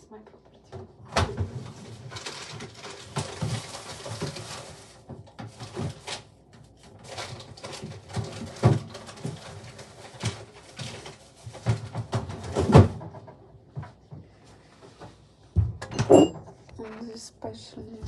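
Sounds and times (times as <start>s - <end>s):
packaging rustling: 1.8s - 11.6s.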